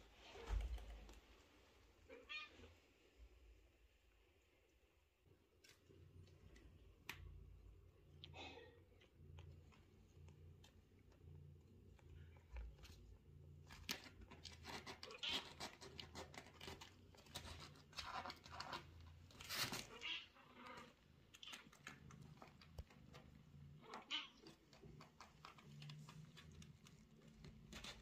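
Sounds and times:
faint low hum: 0.0s - 28.0s
kitten claws scratching fabric: 13.6s - 20.0s, 24.4s - 28.0s.

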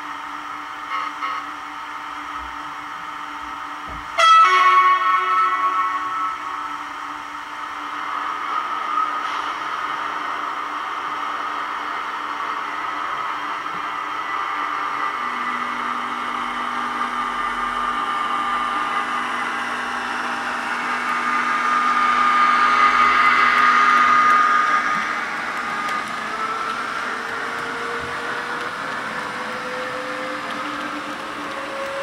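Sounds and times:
train flange squeal: 4.2s - 10.5s, 13.9s - 32.0s.

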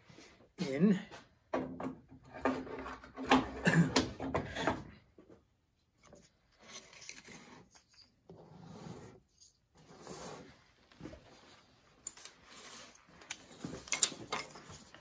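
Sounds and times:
wood scraping and knocking on steel: 1.5s - 4.9s.

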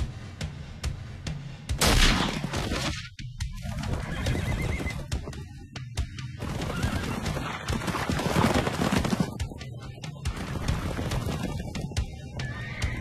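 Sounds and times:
background music: 0.0s - 13.0s
horses galloping: 3.4s - 13.0s
horses whinnying: 3.6s - 5.2s, 6.4s - 9.2s, 12.2s - 13.0s.

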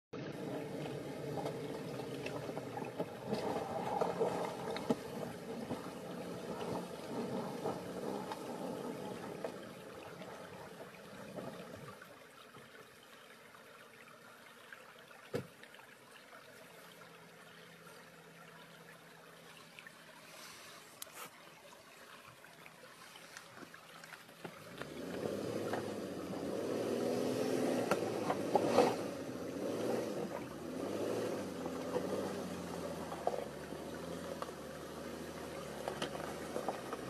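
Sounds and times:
engine running low: 0.2s - 11.9s, 24.7s - 37.0s
water splashing around tyres: 0.2s - 12.8s, 15.2s - 37.0s.

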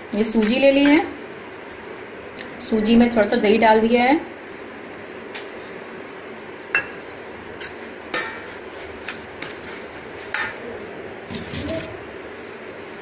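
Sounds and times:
spoon clinking against metal bowl: 6.8s - 7.0s.

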